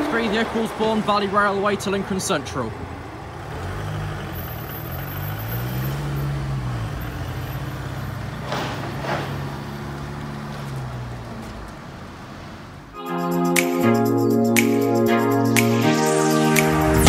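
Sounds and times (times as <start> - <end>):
vehicle engines running: 0.0 - 13.0
engine revving: 3.4 - 10.6.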